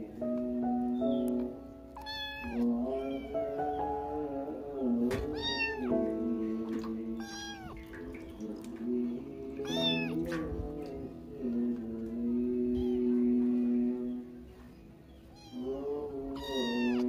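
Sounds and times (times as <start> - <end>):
background music: 0.0 - 17.0
kitten meowing: 1.9 - 3.6, 5.3 - 6.0, 7.2 - 7.9, 9.6 - 10.4, 12.7 - 13.1, 15.2 - 17.0.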